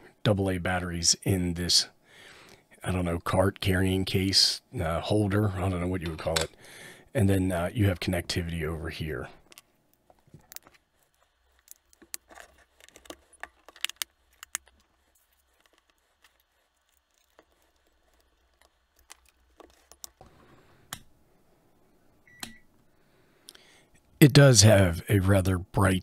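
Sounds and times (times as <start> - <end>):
plastic case being handled: 9.4 - 20.6.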